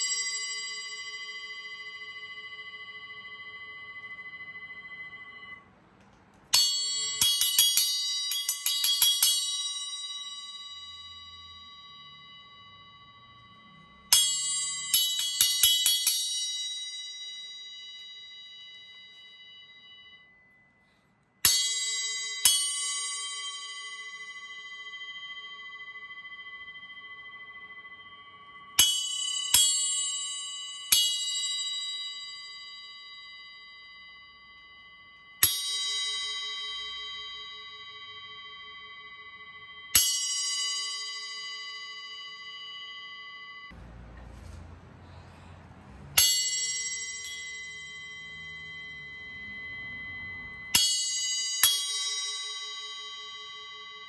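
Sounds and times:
bell cymbal ringing ping: 0.0s - 5.8s, 6.5s - 54.0s
low rumbling noise: 43.8s - 46.2s.

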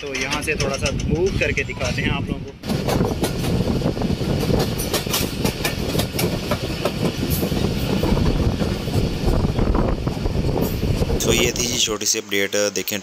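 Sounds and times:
train wheels clattering over rails: 2.6s - 11.5s.

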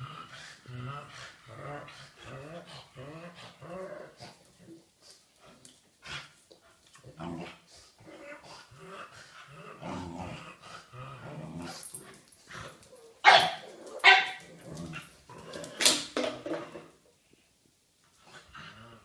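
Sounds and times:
dogs growling: 0.0s - 4.8s, 6.9s - 15.8s
dog barking: 13.2s - 14.4s.

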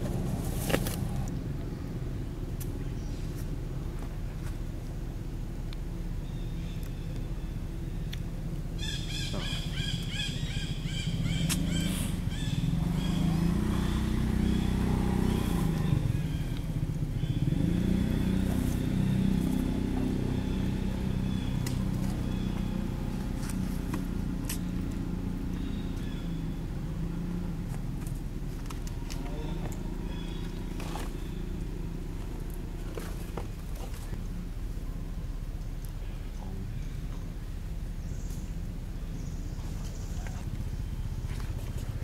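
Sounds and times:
passing vehicle engine hum: 0.0s - 42.0s.

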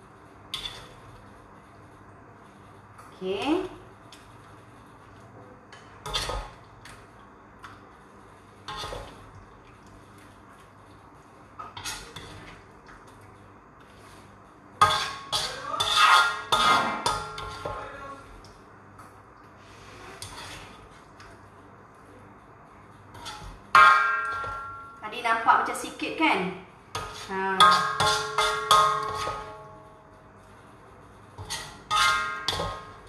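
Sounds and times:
ladle scraping a metal wok: 0.5s - 1.0s, 5.7s - 6.5s, 8.6s - 9.2s, 11.6s - 12.6s, 13.9s - 17.8s, 19.6s - 21.0s, 23.1s - 24.8s, 27.0s - 29.6s, 31.4s - 33.0s
metal ringing: 23.3s - 25.0s, 31.5s - 33.0s.

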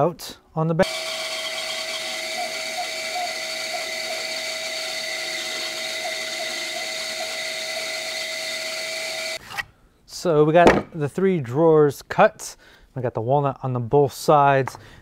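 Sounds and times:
bandsaw cutting wood: 0.8s - 9.4s.

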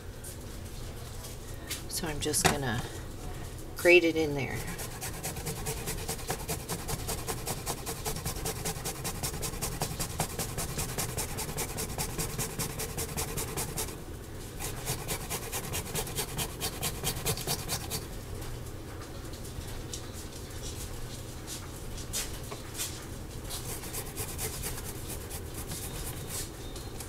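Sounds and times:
garlic rasping on grater: 4.6s - 14.0s, 14.6s - 18.1s, 23.5s - 26.4s.

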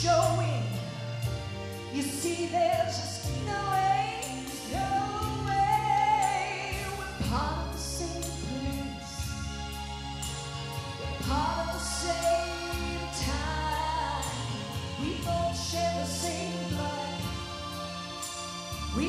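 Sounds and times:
woman singing soul ballad: 0.0s - 1.3s, 1.9s - 9.6s, 11.2s - 19.0s
piano accompaniment: 0.0s - 19.0s.

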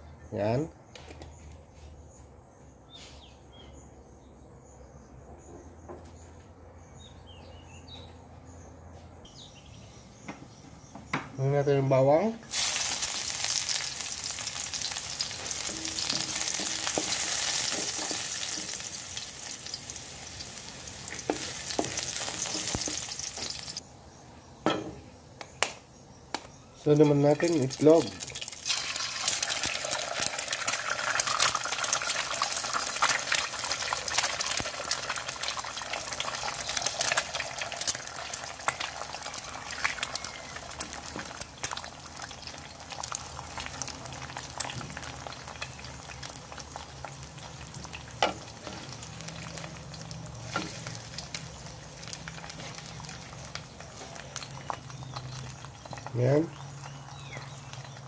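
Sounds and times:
egg sizzling in oil: 12.4s - 23.8s, 27.0s - 58.0s.

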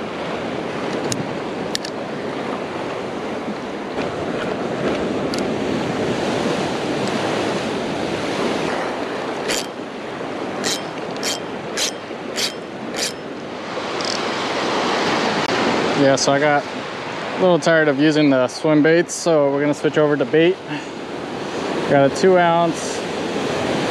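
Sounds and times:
wind on microphone: 0.0s - 16.0s
ocean surf washing: 0.0s - 23.9s.

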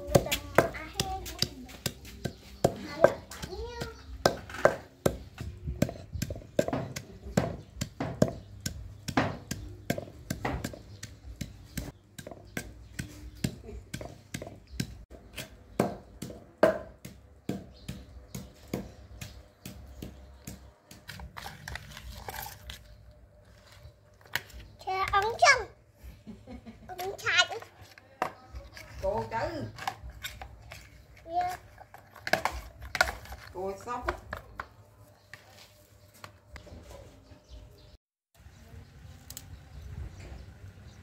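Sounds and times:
pestle pounding in wooden mortar: 0.0s - 22.6s.

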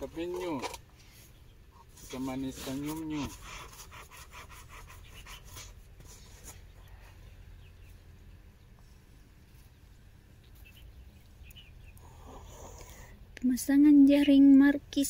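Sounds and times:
low steady hum: 0.0s - 15.0s
faint rustling: 4.7s - 13.2s.

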